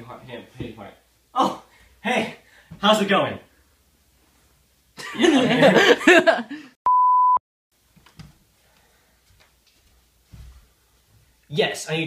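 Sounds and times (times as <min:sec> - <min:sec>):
electronic censor bleep: 0:06.9 - 0:07.4.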